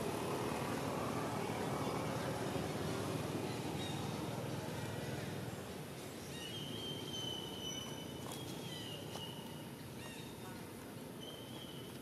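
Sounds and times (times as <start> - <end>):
high whistling calls: 6.3 - 10.3, 11.2 - 12.0.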